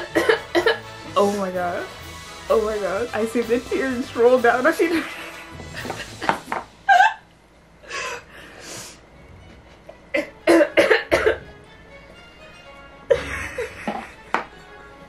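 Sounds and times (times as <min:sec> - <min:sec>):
woman coughing: 0:00.0 - 0:00.8, 0:10.1 - 0:11.5, 0:13.1 - 0:14.0.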